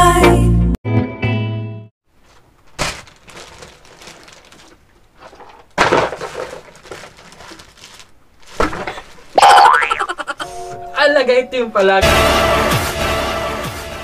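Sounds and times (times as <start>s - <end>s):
crackling rustling noise: 2.1s - 9.4s.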